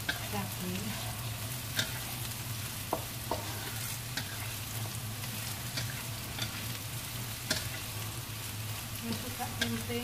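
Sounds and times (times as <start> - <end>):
spatula knocking and scraping pan: 0.0 - 2.2, 2.8 - 4.6
food sizzling in oil: 0.0 - 10.0.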